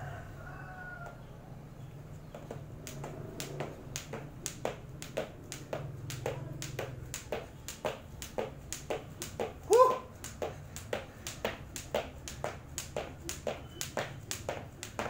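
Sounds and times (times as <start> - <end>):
skipping rope slapping floor: 2.3 - 15.0.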